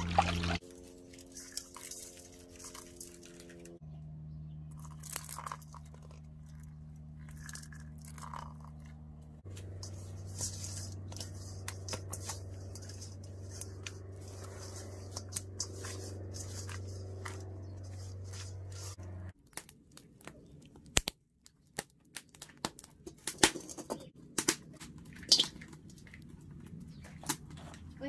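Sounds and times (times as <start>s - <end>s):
low steady hum: 0.0s - 20.3s
wood fire crackling: 9.4s - 28.0s
hands rubbing salt on fish: 9.6s - 19.0s.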